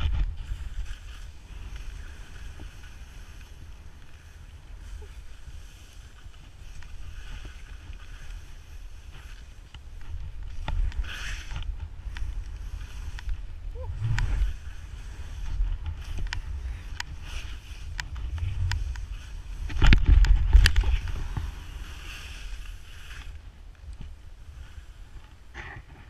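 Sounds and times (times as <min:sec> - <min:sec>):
wind buffeting microphone: 0:00.0 - 0:26.0
skis hissing in snow: 0:11.0 - 0:11.5, 0:20.9 - 0:23.4.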